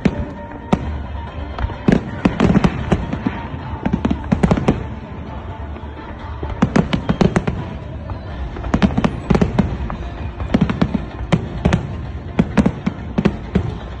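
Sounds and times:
fireworks bangs: 0:00.0 - 0:14.0.

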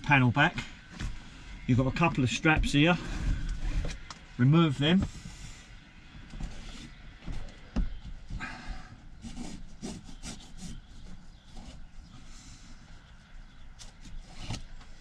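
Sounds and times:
straps rubbing scratchily: 0:09.2 - 0:12.2.

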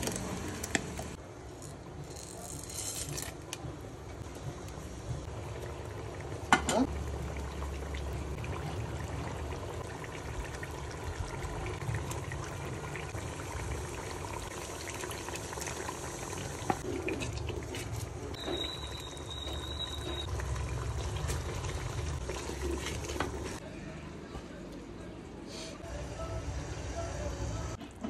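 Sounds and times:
sauce bubbling in a pot: 0:04.2 - 0:23.6.

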